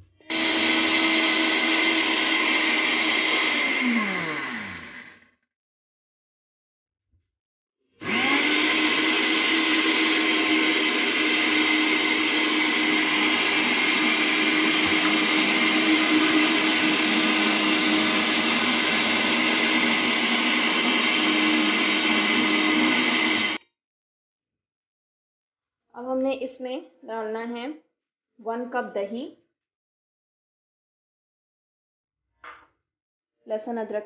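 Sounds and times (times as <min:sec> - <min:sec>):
electric blender whining: 0:00.2 - 0:05.3, 0:08.0 - 0:23.6.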